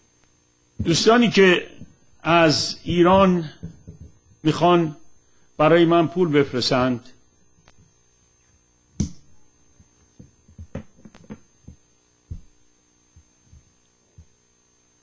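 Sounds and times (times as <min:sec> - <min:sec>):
electrical hum: 0:00.0 - 0:15.0
soft thumps and clicks: 0:02.9 - 0:04.2, 0:10.1 - 0:12.6.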